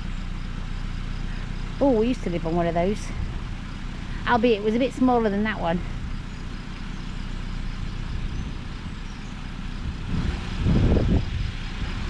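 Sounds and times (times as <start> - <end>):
wind buffeting microphone: 7.7 - 12.0.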